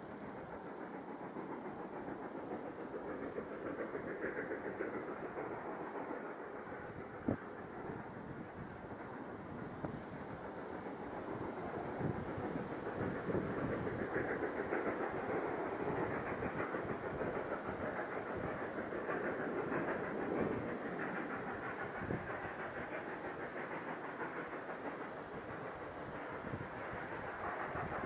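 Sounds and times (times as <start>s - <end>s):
steam locomotive chuffing: 0.0s - 28.0s.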